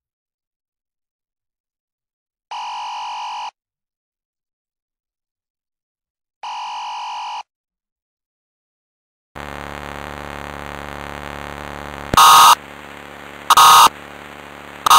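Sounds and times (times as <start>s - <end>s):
steady electrical hum: 9.4s - 14.9s
short loud alert bursts: 12.1s - 12.8s.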